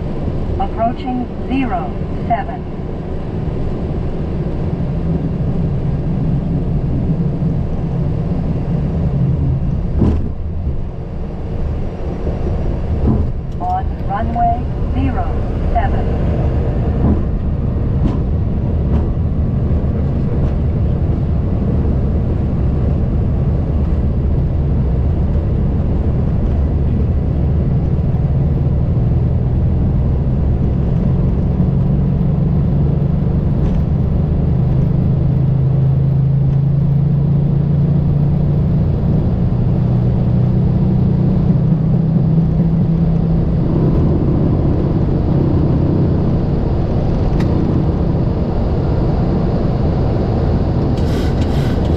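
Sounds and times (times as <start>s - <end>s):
jet engines rumbling: 0.0s - 51.9s
low droning tone: 35.5s - 51.9s.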